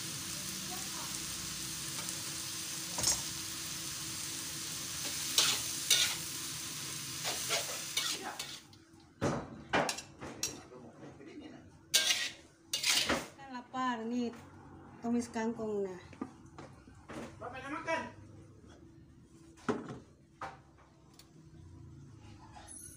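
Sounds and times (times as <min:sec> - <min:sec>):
greens sizzling in a wok: 0:00.0 - 0:08.8, 0:11.9 - 0:13.4
metal spatula scraping pan: 0:05.0 - 0:06.3, 0:07.2 - 0:08.6, 0:12.0 - 0:13.2.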